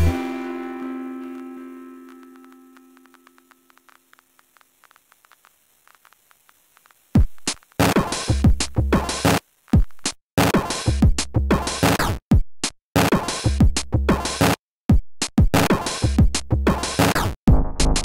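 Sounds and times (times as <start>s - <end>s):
faint scattered clicks: 1.3s - 8.0s
drum machine beat: 7.2s - 18.0s.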